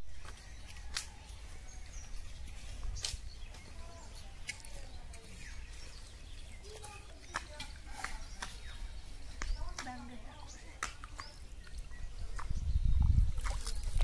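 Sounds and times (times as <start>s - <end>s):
birds chirping: 0.0s - 14.0s
low wind rumble on microphone: 11.8s - 14.0s.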